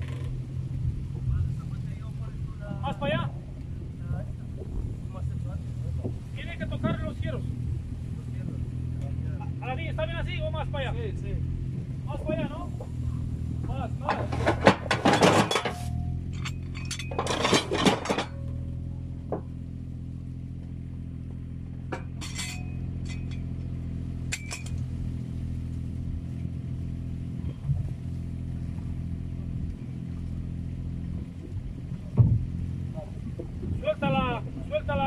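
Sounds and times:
diesel engine running: 0.0 - 35.0
steel parts clanking: 13.7 - 18.7, 21.9 - 24.9.

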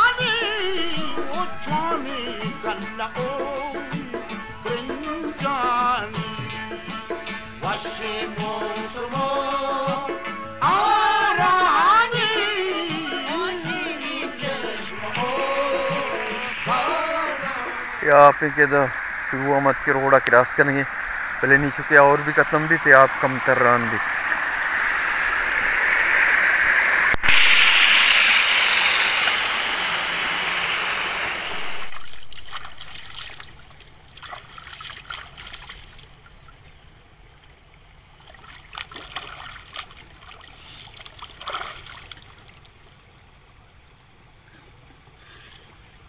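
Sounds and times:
water rushing over rock: 0.0 - 10.1, 14.4 - 36.9, 37.6 - 43.8
small water splashes: 14.6 - 46.0.

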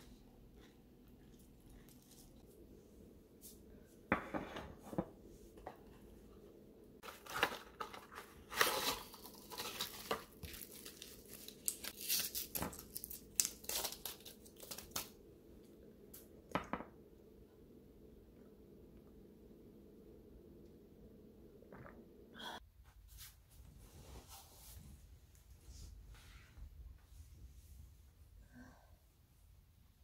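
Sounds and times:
foil blister pack crinkling: 7.0 - 15.1.

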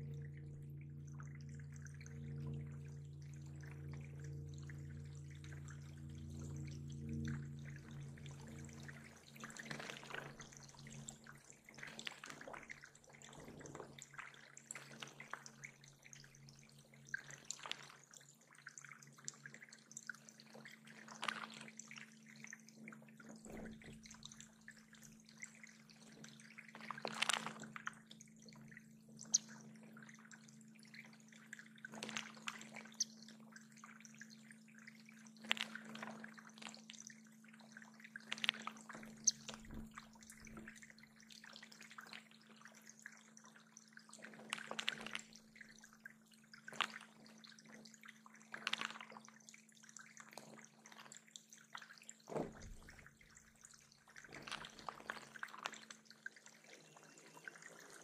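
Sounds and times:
steady low hum: 0.0 - 13.4
water dripping and splashing: 0.1 - 58.0.

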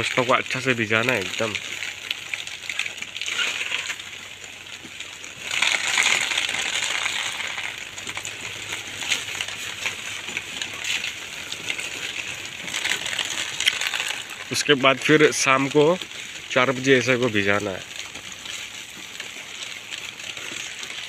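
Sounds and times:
hose water splashing on plastic bag: 0.0 - 21.0.

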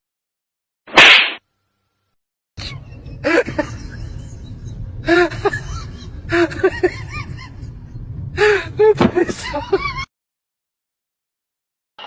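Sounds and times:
low rumble: 2.9 - 9.0.

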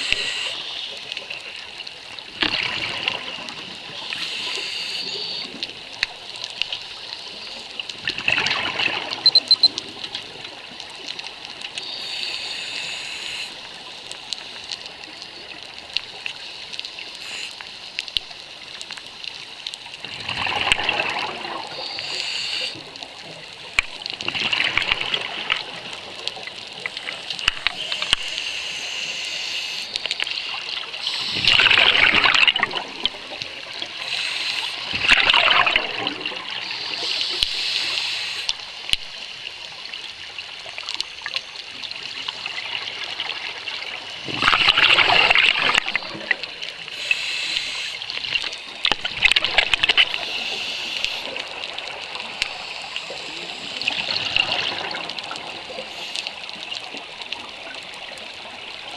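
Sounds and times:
steady hiss: 0.0 - 2.2, 3.7 - 7.9, 10.3 - 20.0, 21.6 - 23.8, 25.7 - 35.0, 35.7 - 44.2, 45.1 - 54.5, 55.1 - 58.9
exhaled bubbles gurgling: 2.2 - 6.0, 7.9 - 12.0, 20.0 - 22.1, 30.6 - 34.1, 34.7 - 37.6, 42.0 - 47.0, 48.1 - 58.9.

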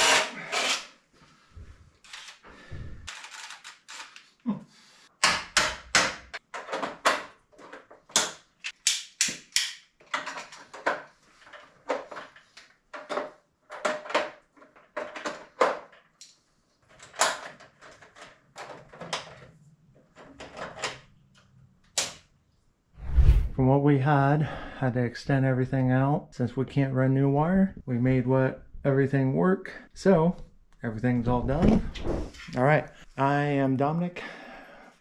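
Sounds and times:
sharp metallic clicks and snaps: 8.1 - 9.9.

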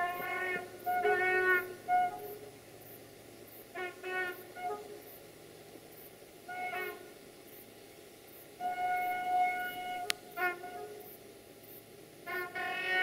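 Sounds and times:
locomotive air horn: 0.0 - 2.6, 3.7 - 5.2, 6.4 - 7.2, 8.6 - 11.2, 12.2 - 13.0.

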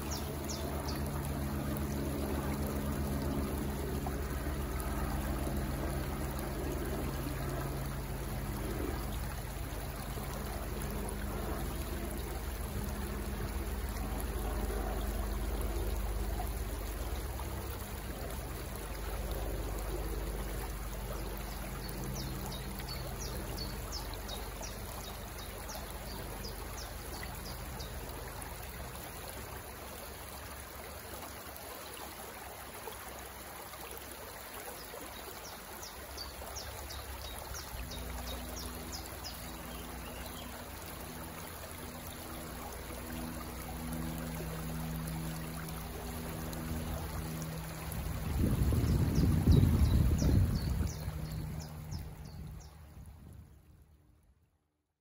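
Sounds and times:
low hum: 0.0 - 28.3
water trickling and flowing: 0.0 - 54.2.

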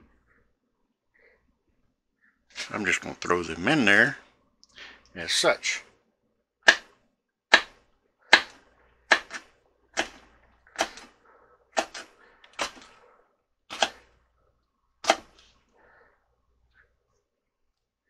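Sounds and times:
knife chopping on wooden board: 6.7 - 6.9, 7.5 - 9.4, 10.0 - 10.2, 10.8 - 11.1, 11.8 - 12.8, 13.7 - 14.0, 15.0 - 15.4.

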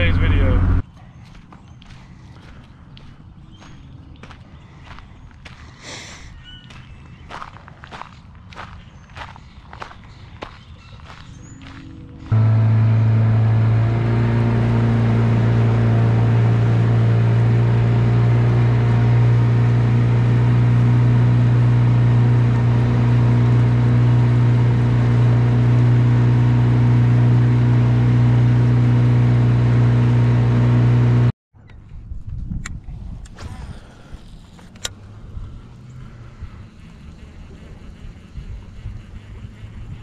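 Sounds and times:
outboard motor droning: 0.0 - 0.8, 12.0 - 31.3, 33.7 - 40.0.

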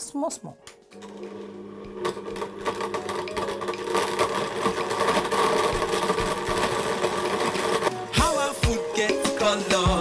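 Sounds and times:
blender motor running: 1.0 - 8.2
ice rattling in glass jar: 2.1 - 8.0.

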